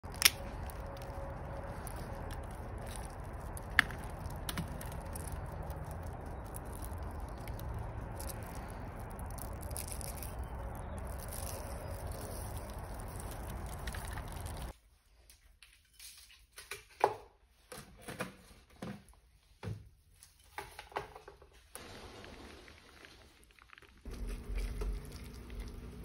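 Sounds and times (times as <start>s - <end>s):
honeycomb crackling by hand: 0.0s - 14.8s, 21.8s - 26.0s.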